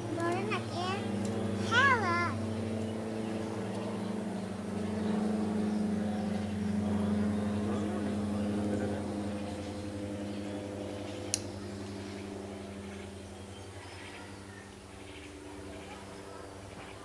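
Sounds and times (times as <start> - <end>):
engine hum: 0.0 - 17.0.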